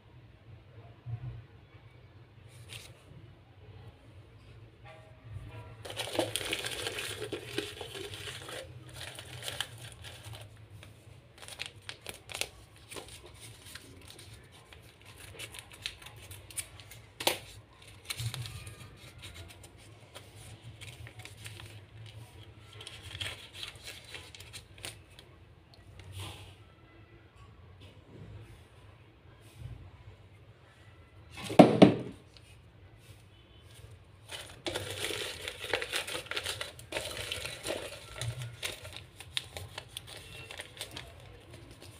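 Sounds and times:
paper rustling against plastic jar: 2.5 - 3.0, 5.8 - 25.2, 33.8 - 41.9.

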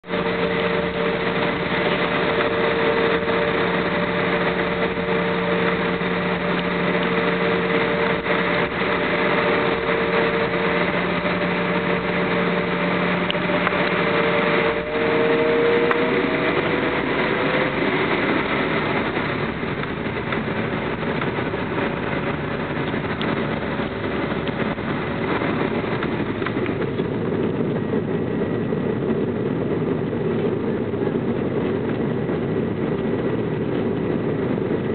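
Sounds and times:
humming engine tones: 0.0 - 34.9
jet engines rushing: 0.0 - 34.9.

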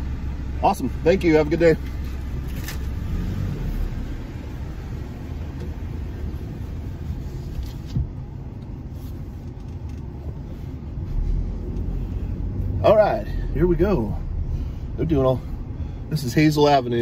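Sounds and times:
truck engine rumble: 0.0 - 17.0.

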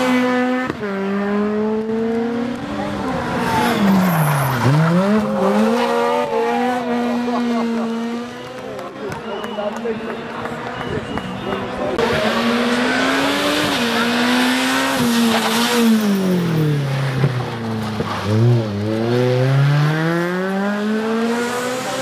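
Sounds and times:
rally car engine revving: 0.0 - 22.0
tyre squeal: 3.4 - 5.6.

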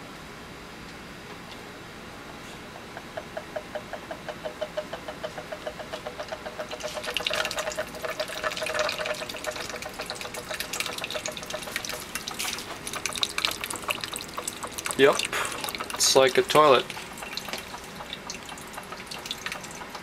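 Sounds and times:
magnetic stirrer ticking: 3.0 - 20.0
liquid swirling and splashing: 5.6 - 20.0.

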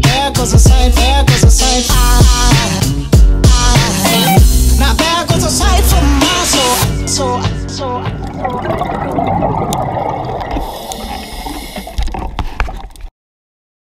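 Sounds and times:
background music: 0.0 - 10.4
underwater bubbling: 8.0 - 13.1.

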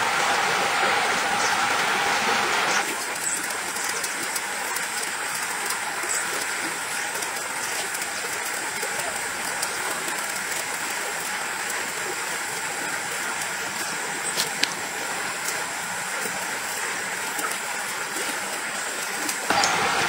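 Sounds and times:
forest ambient hiss: 0.0 - 20.0.

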